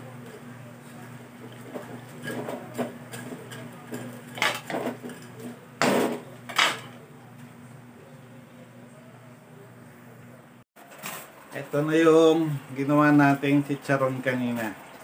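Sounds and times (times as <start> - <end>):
steady low hum: 0.0 - 10.6.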